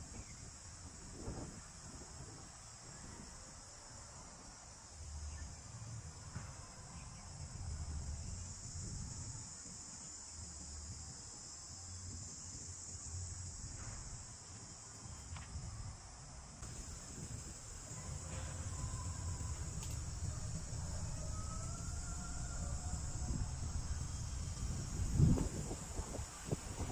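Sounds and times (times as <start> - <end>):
high-pitched insect chorus: 0.0 - 26.9
low rumble on microphone: 5.0 - 9.5, 16.6 - 26.9.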